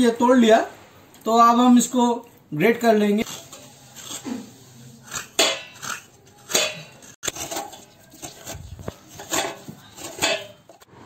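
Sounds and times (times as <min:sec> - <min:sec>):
coconut scraping strokes: 0:03.2 - 0:11.0.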